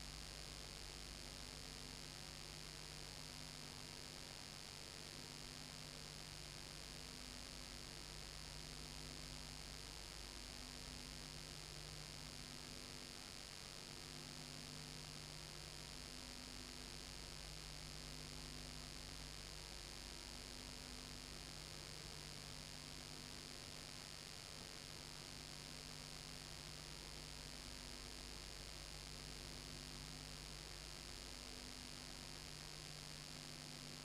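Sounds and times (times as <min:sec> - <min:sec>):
low electrical hum with hiss: 0:00.0 - 0:34.0.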